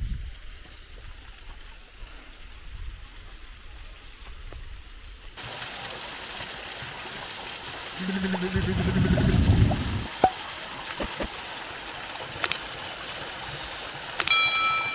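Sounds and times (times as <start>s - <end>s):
waterfall rushing: 7.8s - 14.2s
low steady tone: 8.0s - 10.4s.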